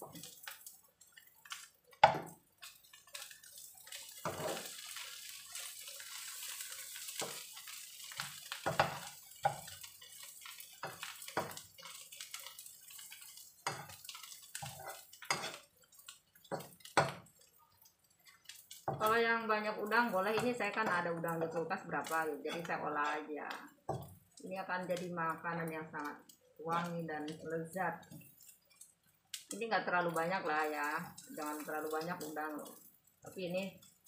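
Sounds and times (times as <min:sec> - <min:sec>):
hot oil sizzling: 0:00.0 - 0:34.0
wooden spatula scraping a wok: 0:03.9 - 0:15.6, 0:22.1 - 0:23.2.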